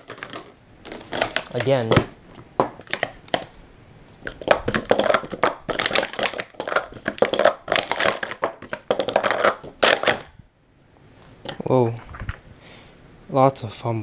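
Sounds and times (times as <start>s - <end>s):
plastic cups clattering: 0.0s - 3.6s, 4.2s - 10.3s.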